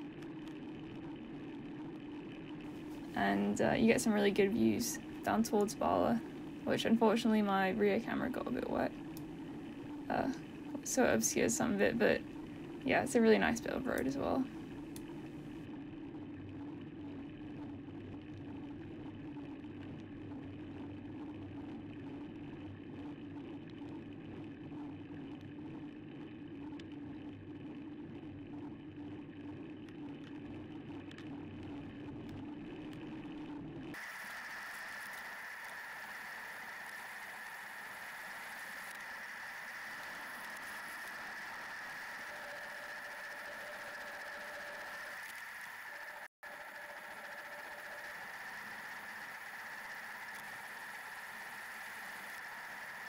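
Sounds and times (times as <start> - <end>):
steady high whine: 0.0 - 53.0
bicycle riding noise: 34.0 - 53.0.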